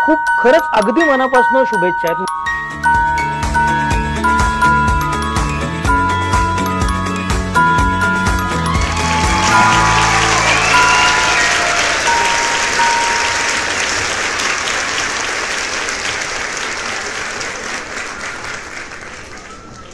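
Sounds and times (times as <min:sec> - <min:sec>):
held music notes: 0:00.0 - 0:15.5
crowd applause: 0:08.6 - 0:19.9.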